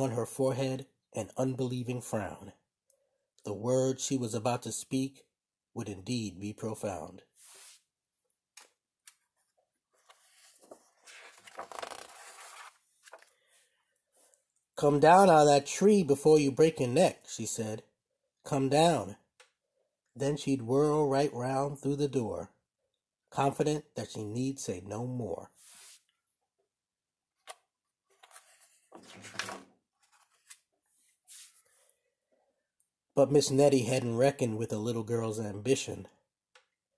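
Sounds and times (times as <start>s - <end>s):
book pages rustling: 8.6s - 14.3s, 27.4s - 31.9s.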